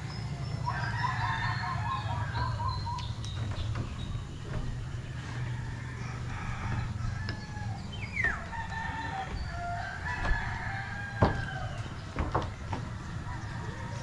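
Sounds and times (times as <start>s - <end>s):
rooster crowing: 0.6s - 2.8s, 5.2s - 11.9s
sharp knocks: 9.2s - 13.0s.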